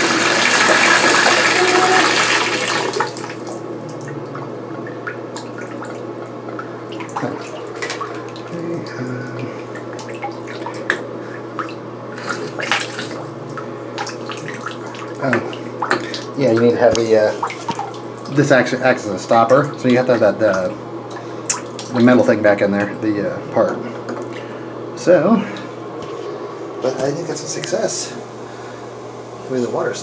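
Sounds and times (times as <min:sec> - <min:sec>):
water running into a bathtub: 0:00.0 - 0:26.1
steady low hum: 0:00.0 - 0:30.0
small drips and clicks: 0:19.4 - 0:22.0.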